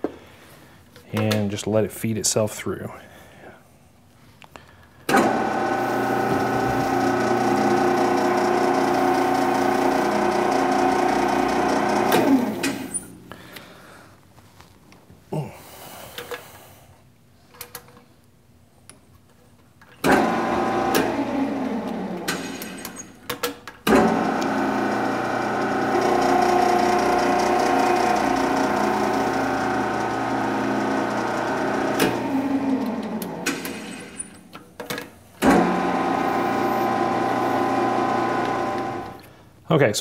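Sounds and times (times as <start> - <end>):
metal lathe motor running: 5.1 - 13.1, 20.1 - 22.4, 23.9 - 33.6, 35.4 - 39.2.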